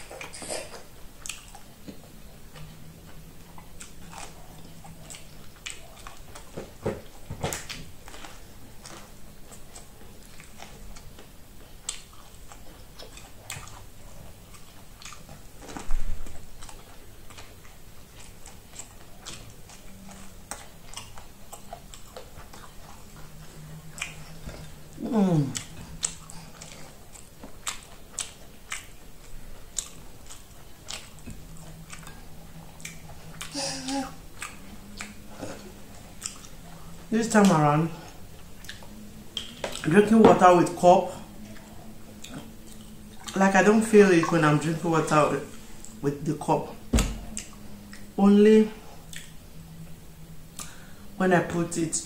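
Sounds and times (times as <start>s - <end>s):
biting and chewing corn: 0.0s - 46.4s
loud low thump: 46.9s - 47.3s.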